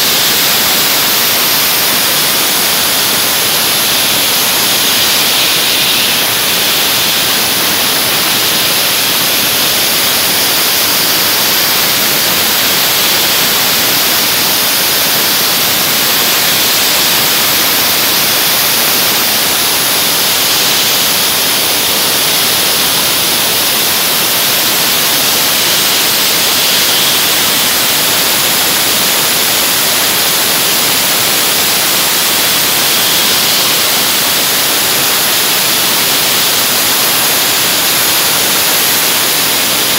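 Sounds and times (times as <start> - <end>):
dry-ice blasting gun hissing: 0.0 - 39.9.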